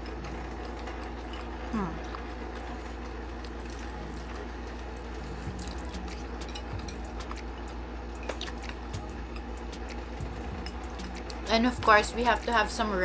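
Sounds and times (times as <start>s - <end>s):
steady low hum: 0.0s - 13.0s
chopsticks tapping bowls: 5.5s - 9.9s.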